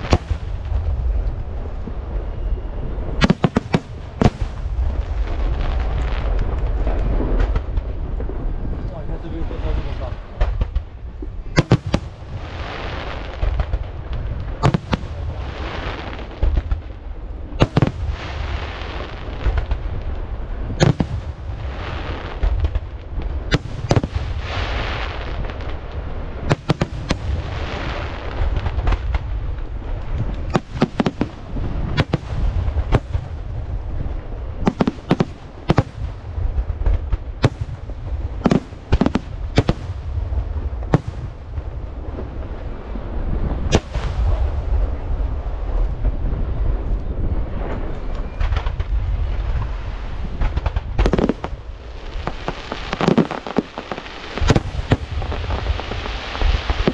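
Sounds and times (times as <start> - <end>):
fireworks crackling: 0.0 - 8.8, 9.4 - 56.9
low rumble: 0.0 - 56.9
firework shells bursting: 50.4 - 56.9.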